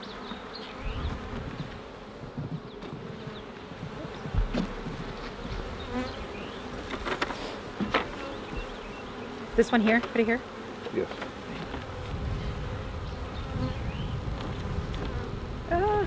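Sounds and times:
bees buzzing: 0.0 - 16.0
wooden hive frames knocking: 1.1 - 6.1, 6.7 - 8.9.

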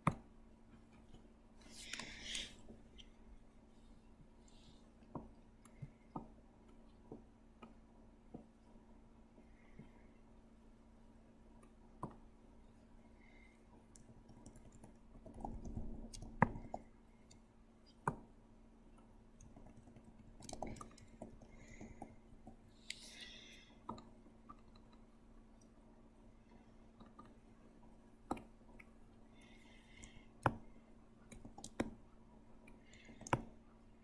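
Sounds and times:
faint steady hum: 0.0 - 34.0
computer mouse clicks: 32.7 - 33.6.

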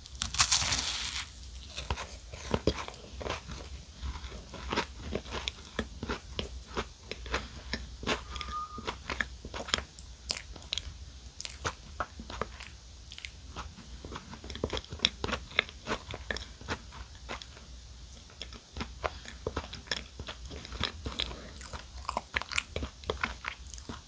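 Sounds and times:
crisp biscuit crunches: 0.0 - 6.2.

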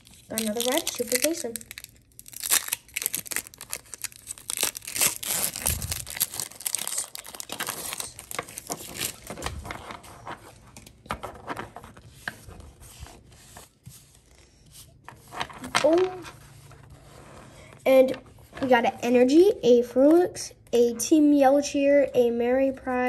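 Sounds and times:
foil wrapper crinkling and tearing: 0.0 - 9.8.

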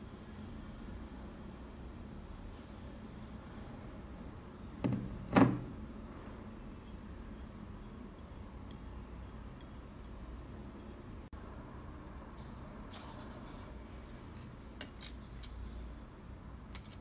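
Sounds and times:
toothbrush scrubbing: 6.6 - 11.2.

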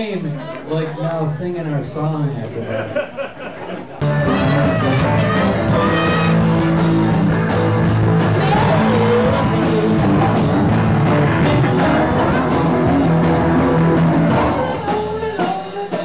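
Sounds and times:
bass guitar: 3.9 - 16.0
drum kit: 4.0 - 16.0
electric guitar: 4.0 - 16.0.

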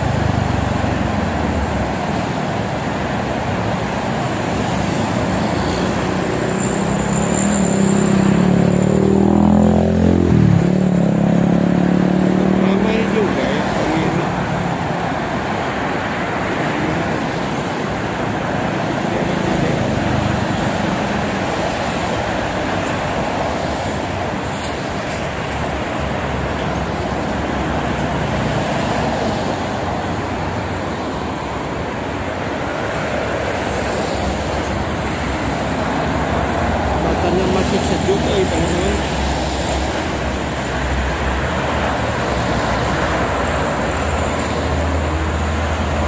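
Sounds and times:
highway traffic noise: 0.0 - 46.0.

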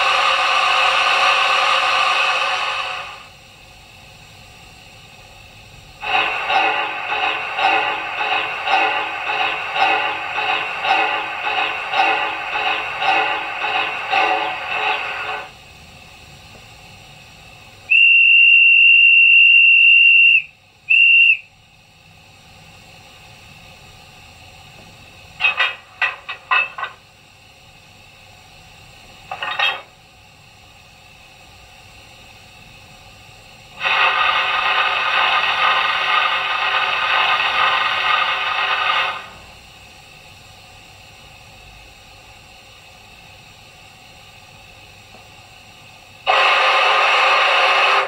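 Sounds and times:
steady hiss: 0.0 - 48.0
steam whistle: 17.9 - 21.5, 46.3 - 48.0.

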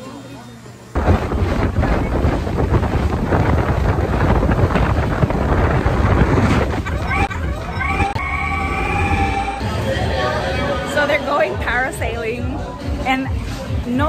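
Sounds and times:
wind buffeting microphone: 1.0 - 8.2
boat rushing through water: 1.0 - 11.9.

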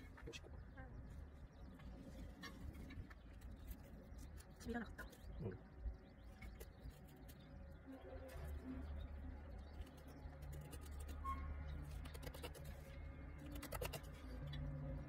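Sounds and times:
knife clicking through flesh: 13.4 - 14.3.

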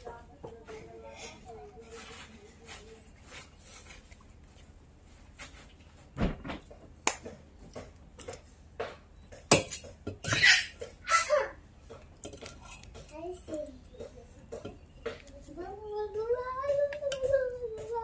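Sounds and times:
voice: 0.0 - 3.4, 13.0 - 18.0
dishes and utensils clattering: 7.8 - 15.3.

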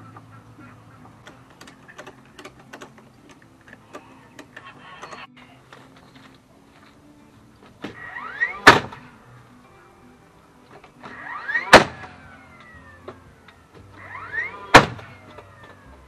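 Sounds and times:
nail gun bang: 7.8 - 9.0, 11.0 - 12.2, 14.0 - 15.4
nailer motor whine: 7.9 - 9.2, 10.9 - 16.0.

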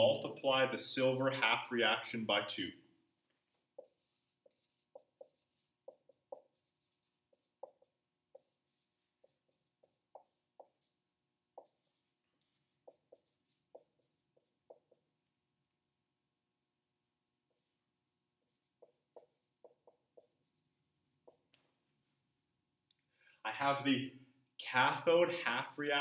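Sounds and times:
marker squeaking on whiteboard: 3.4 - 15.2, 17.5 - 17.8, 18.4 - 21.7.

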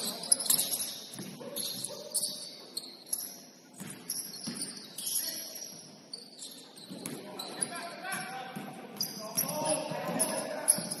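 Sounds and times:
shoes squeaking on gym court: 0.0 - 11.0
basketball bouncing: 0.6 - 2.0, 3.8 - 4.8.

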